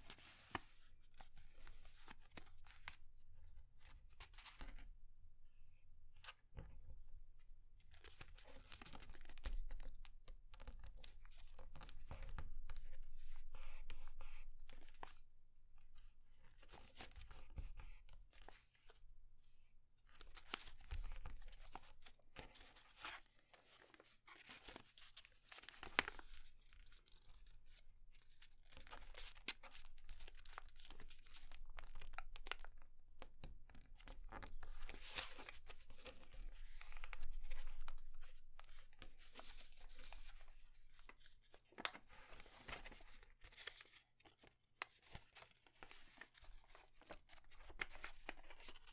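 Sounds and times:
paper crinkling: 20.4 - 27.5, 34.0 - 48.9.

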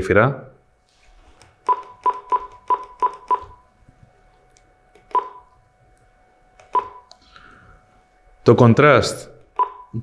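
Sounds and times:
short key-press beeps: 1.7 - 3.6, 5.1 - 5.4, 6.7 - 7.1, 9.6 - 9.9.

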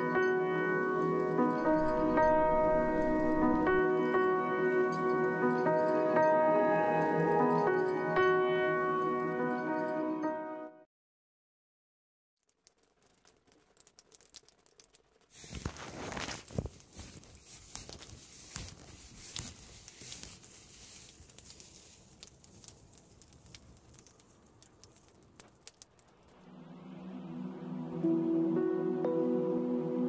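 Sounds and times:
rain pattering on vehicle roof: 12.4 - 26.4.

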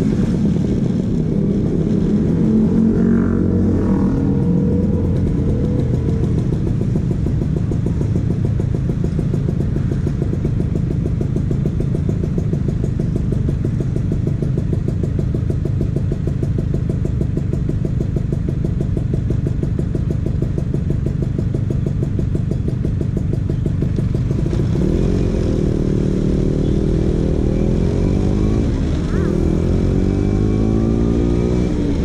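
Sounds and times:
scooter engine pulsing: 2.5 - 10.0.

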